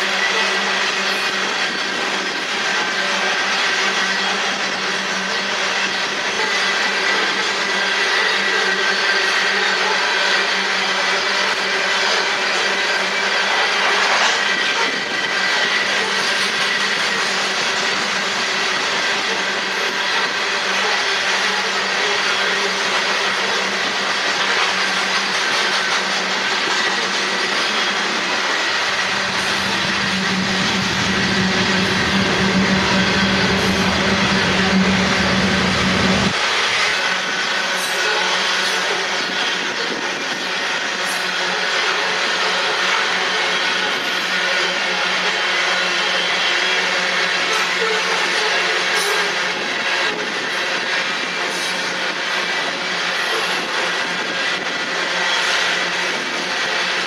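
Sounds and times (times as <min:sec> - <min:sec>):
train wheels rumbling on rails: 0:00.0 - 0:57.0
wheels clickety-clack: 0:00.0 - 0:57.0
deep low rumble: 0:28.7 - 0:36.4.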